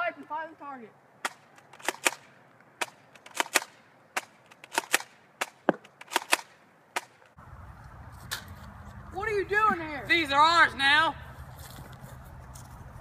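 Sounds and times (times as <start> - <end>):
toy gun cracks: 1.2 - 7.2.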